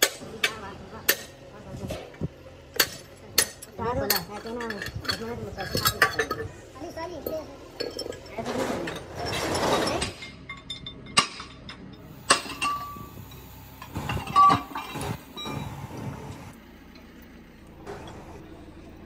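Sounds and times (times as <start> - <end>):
metal tools clinking and knocking: 2.8 - 15.8.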